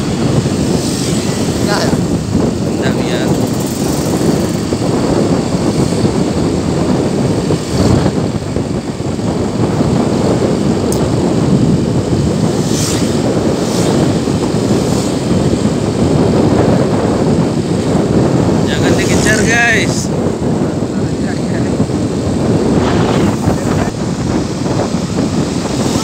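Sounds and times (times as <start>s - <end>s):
motorcycle engine and road noise: 0.0s - 26.0s
wind on microphone: 0.0s - 26.0s.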